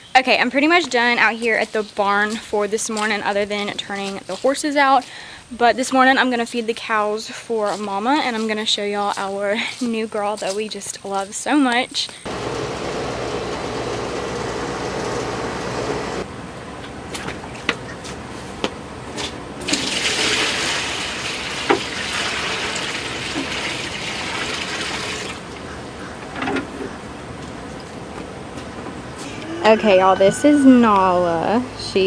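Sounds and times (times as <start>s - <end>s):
hose running water into bucket: 19.7s - 25.4s
water splashing into metal tub: 19.7s - 25.5s.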